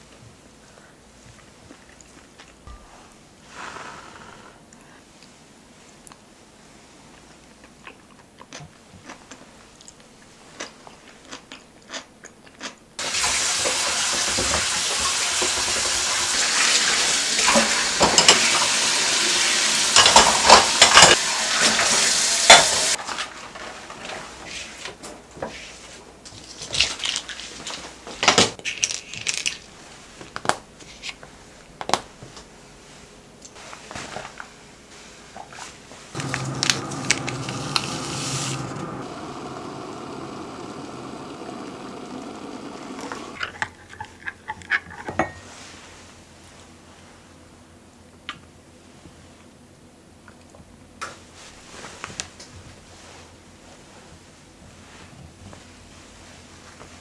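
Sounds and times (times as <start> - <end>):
tap water running into sink: 13.0 - 23.0, 36.2 - 43.4.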